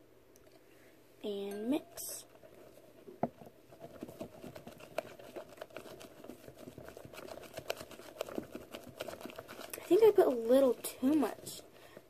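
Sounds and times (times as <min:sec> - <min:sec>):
spatula stirring foamy mixture: 0:02.3 - 0:12.0
wet crackling: 0:04.0 - 0:11.9.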